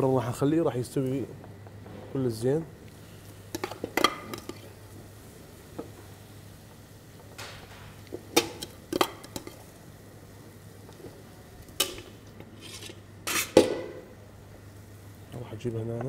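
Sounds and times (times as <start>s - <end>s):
metal spoon scraping a pot: 11.8s - 13.6s.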